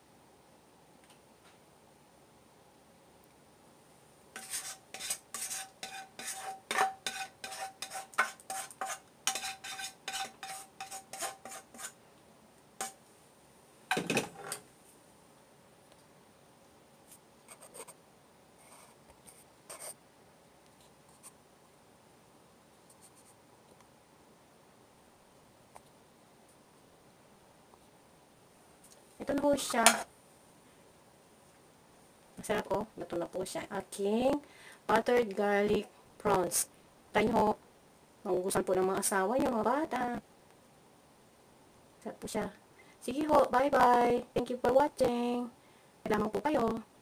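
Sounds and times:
spoon scraping and knocking on pan: 4.4 - 12.0, 12.8 - 13.0, 13.9 - 14.6, 29.7 - 30.1.

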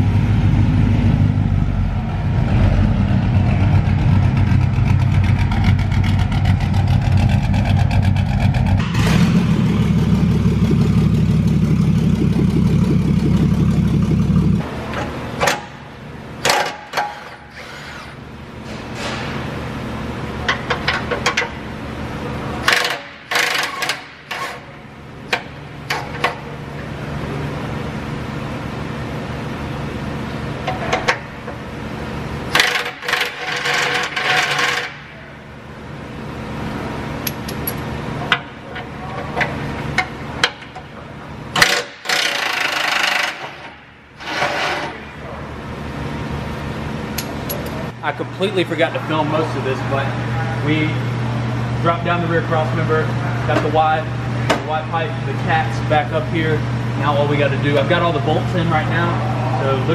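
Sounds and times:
truck engine running: 0.0 - 16.6
ratchet clicking: 41.6 - 43.5.

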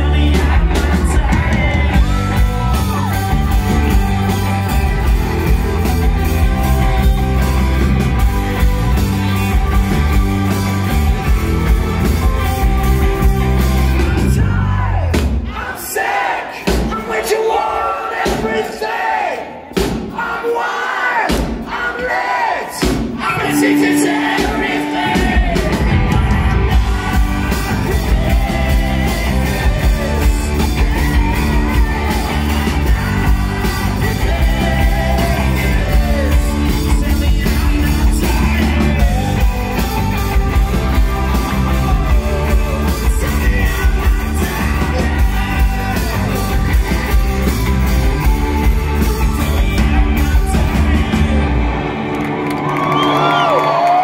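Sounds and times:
person singing: 0.0 - 7.6, 23.2 - 51.9
electric guitars: 0.0 - 15.1, 23.2 - 54.0
bass: 0.0 - 15.6, 22.8 - 54.0
drums: 0.0 - 54.0.

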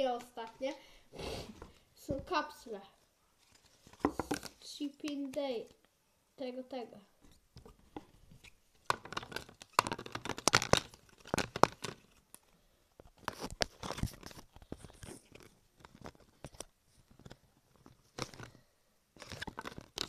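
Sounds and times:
packaging crinkling: 8.9 - 20.0.

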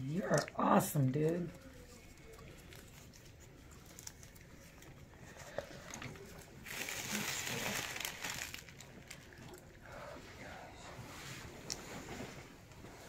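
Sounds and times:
crinkling rustle: 1.2 - 13.0.

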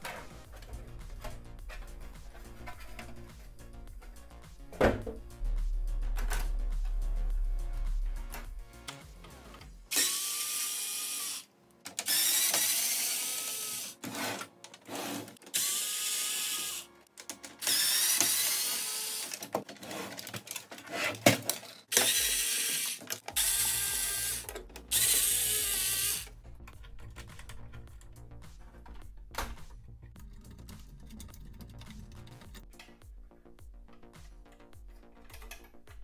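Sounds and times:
electric screwdriver whirring: 9.9 - 14.3, 15.0 - 16.9, 17.6 - 19.4, 21.9 - 26.3.

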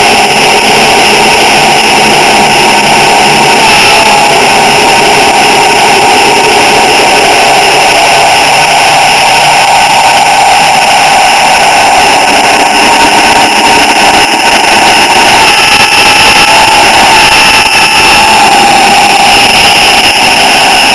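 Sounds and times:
model train mechanical hum: 0.0 - 16.0.

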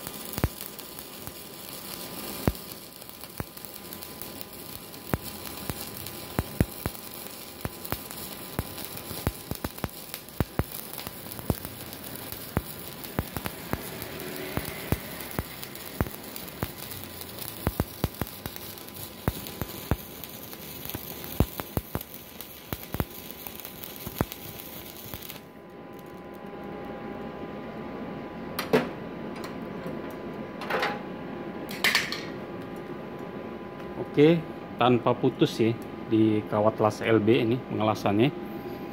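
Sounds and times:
welding arc crackling: 0.0 - 27.0.

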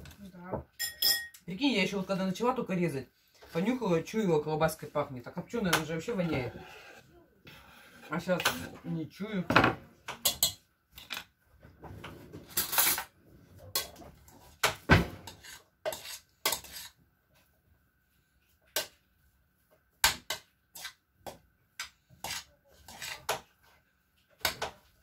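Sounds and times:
utensils clattering on metal pot: 0.8 - 1.4.

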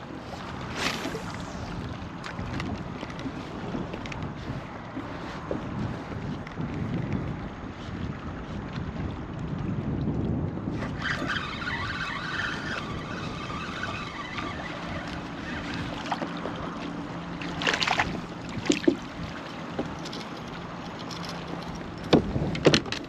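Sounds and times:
wind noise on microphone: 0.0 - 23.0
fishing reel whirring: 10.8 - 16.3.

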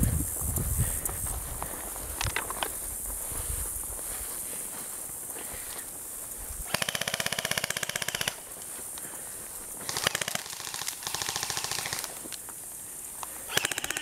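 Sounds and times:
airsoft rifle full-auto bursts: 6.7 - 8.5, 9.8 - 12.2, 13.5 - 14.0.

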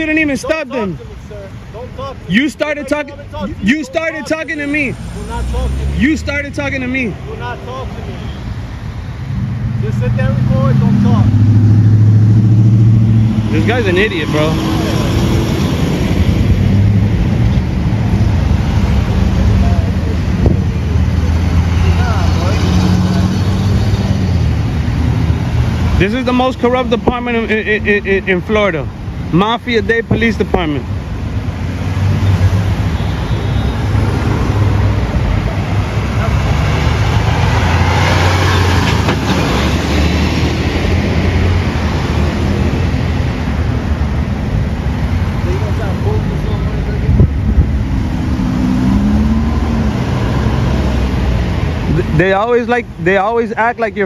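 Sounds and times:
road traffic: 0.0 - 54.0
vehicle engines idling: 0.0 - 54.0
wind buffeting microphone: 47.0 - 48.8.

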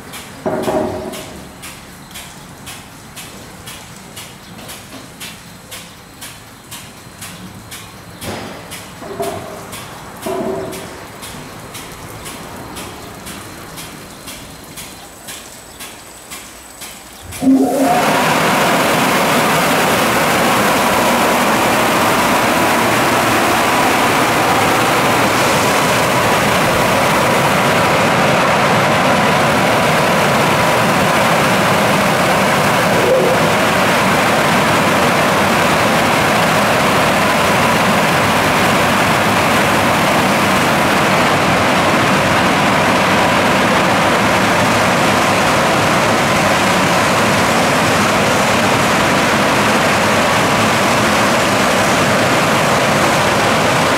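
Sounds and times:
dryer blowers rushing air: 17.3 - 53.9.

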